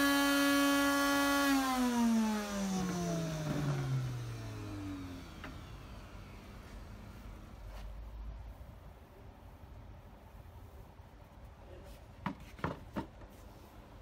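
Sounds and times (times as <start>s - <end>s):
grain mill motor whining: 0.0s - 7.7s.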